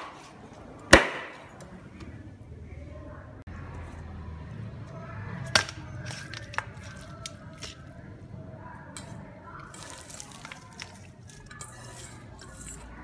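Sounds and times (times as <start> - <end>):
leaves rustling: 9.7 - 11.3.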